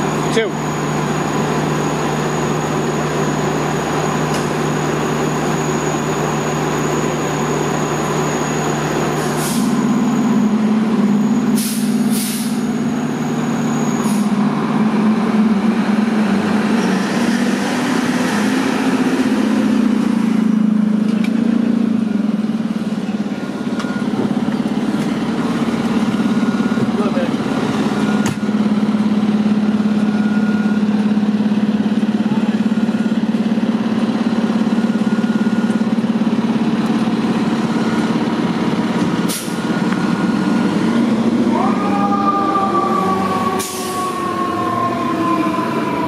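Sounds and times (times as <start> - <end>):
fire engine diesel engine running: 0.0 - 46.0
air brake hisses: 9.2 - 9.8, 11.5 - 12.7, 39.3 - 39.6, 43.6 - 44.2.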